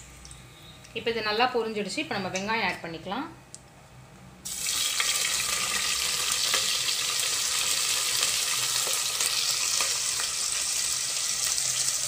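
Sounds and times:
onions sizzling in hot oil: 4.4s - 12.0s.

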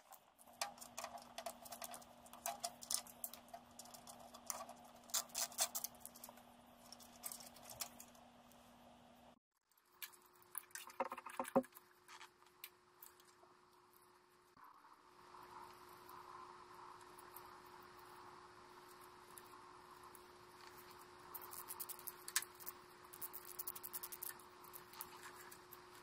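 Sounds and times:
small clicks and taps of wires: 0.0s - 8.2s, 20.6s - 25.7s.

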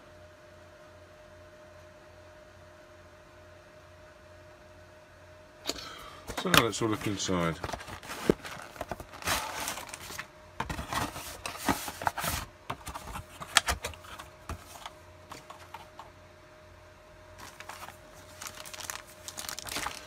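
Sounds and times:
cardboard and paper rustling: 6.3s - 16.1s, 17.4s - 20.0s.

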